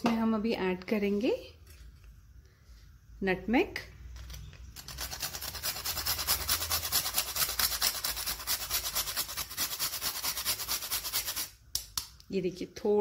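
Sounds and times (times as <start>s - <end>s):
nutmeg grating on metal grater: 4.8s - 11.5s.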